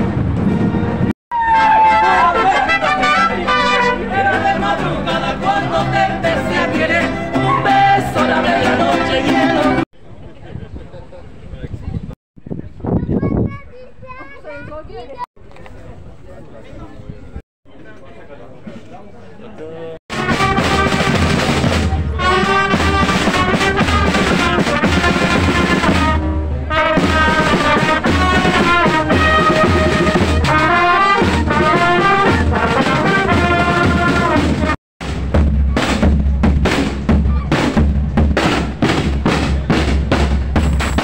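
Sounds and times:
marching band playing: 0:00.0 - 0:09.8, 0:20.1 - 0:41.0
heavy bass drum beats: 0:20.1 - 0:41.0.

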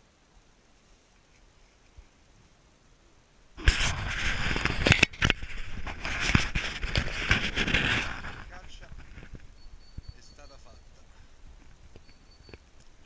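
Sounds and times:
clothing rubbing on microphone: 0:03.6 - 0:12.6
dry cornstalks rustling and crackling: 0:03.6 - 0:13.0.

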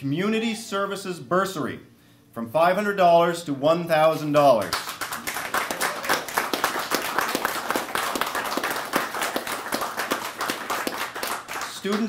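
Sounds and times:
small group applauding: 0:04.6 - 0:12.0.

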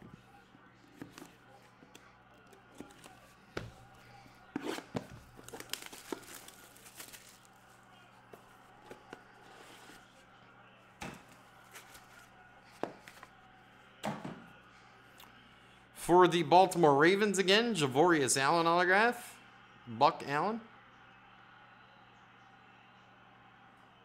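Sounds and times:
cards clicking and rustling: 0:00.8 - 0:04.0, 0:04.6 - 0:07.5
packaging torn open and crinkled: 0:05.4 - 0:07.5.

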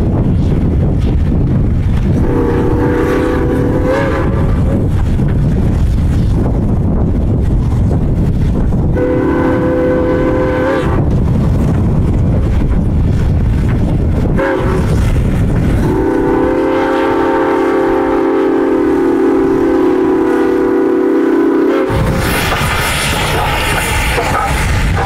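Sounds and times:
low rumble of locomotive: 0:00.0 - 0:25.0
steam whistle blowing: 0:02.2 - 0:04.5, 0:09.0 - 0:11.0, 0:15.8 - 0:22.0.

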